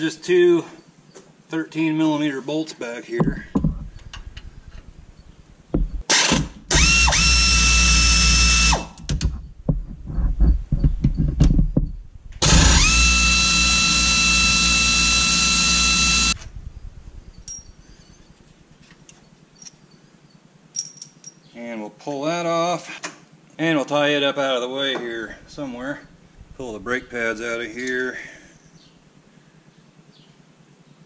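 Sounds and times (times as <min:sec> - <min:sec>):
power ratchet motor whine: 0:06.0 - 0:09.1, 0:12.4 - 0:17.8.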